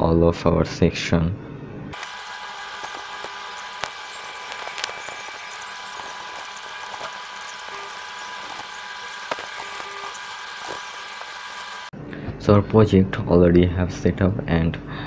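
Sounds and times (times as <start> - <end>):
high electrical whine: 1.9 - 11.9.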